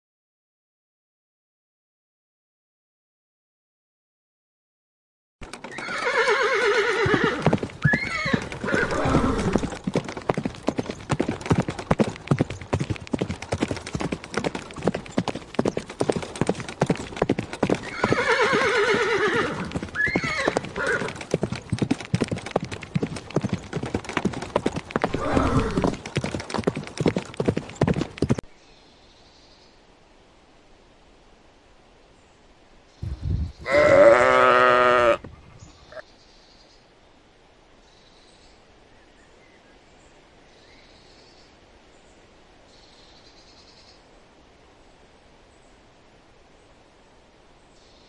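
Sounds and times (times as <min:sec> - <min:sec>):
hooves clip-clopping: 0:05.4 - 0:28.4
horse whinnying: 0:05.6 - 0:09.8, 0:17.8 - 0:21.2, 0:25.0 - 0:26.0, 0:33.6 - 0:36.0.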